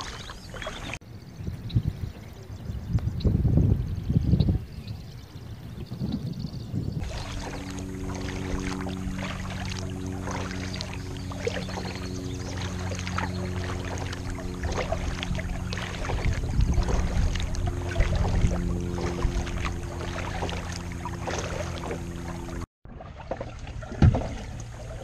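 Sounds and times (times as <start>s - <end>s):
paddle splashing water: 0.0s - 1.0s, 7.0s - 25.0s
low hum of sustained tones: 7.0s - 25.0s.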